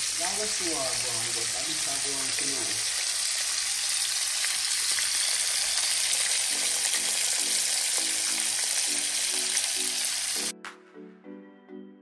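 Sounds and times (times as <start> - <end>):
chicken sizzling in oil: 0.0 - 10.5.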